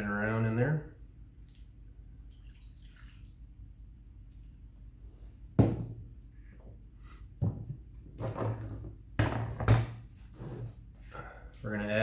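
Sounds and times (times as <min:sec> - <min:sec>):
plastic containers knocking on table: 0:07.4 - 0:10.0.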